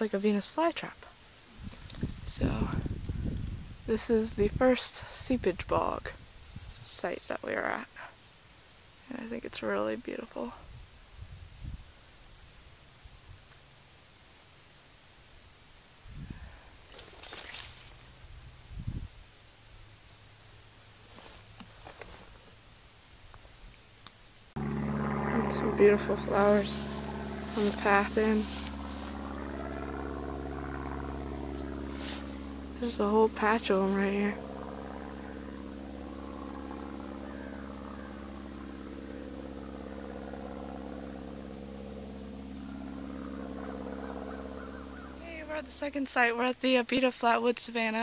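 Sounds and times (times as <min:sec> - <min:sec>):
insects trilling: 0:00.0 - 0:48.0
steady engine drone: 0:24.4 - 0:46.6.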